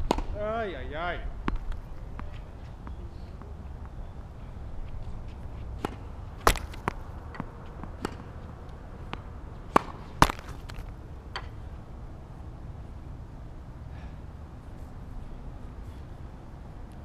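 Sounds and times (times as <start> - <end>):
tennis balls struck with rackets: 0.0 - 0.6, 1.4 - 4.3, 5.4 - 11.6
balls bouncing on court: 5.6 - 11.5.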